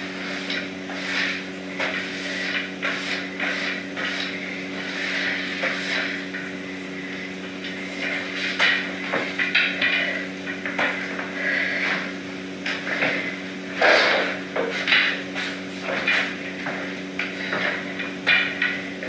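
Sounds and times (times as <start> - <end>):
broom sweeping hard floor: 0.0 - 19.0
steady low hum: 0.0 - 19.0.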